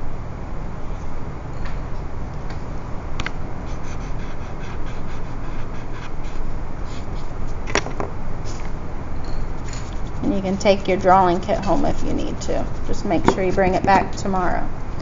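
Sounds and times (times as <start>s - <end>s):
blending stump scratching on paper: 3.6s - 7.5s, 9.8s - 14.3s.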